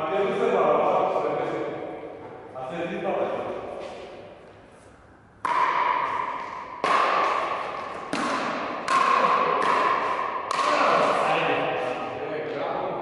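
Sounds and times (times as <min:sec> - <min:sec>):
paddles hitting plastic ball: 0:05.4 - 0:11.1.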